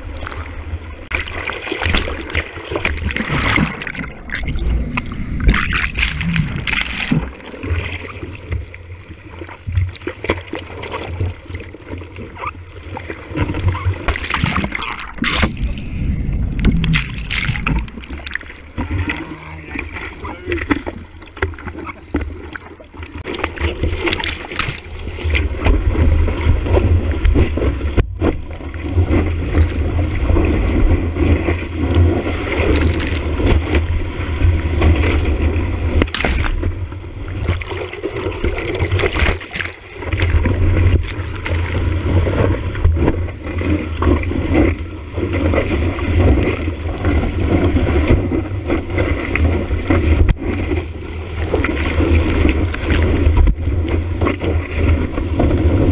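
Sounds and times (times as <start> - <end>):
surf rushing and splashing: 0.0 - 55.9
wind buffeting microphone: 15.2 - 18.0.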